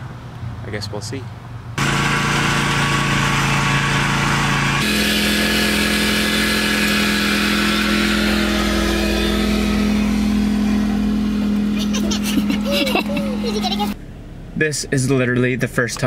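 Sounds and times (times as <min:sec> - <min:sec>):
riding lawn mower engine: 0:01.8 - 0:14.5.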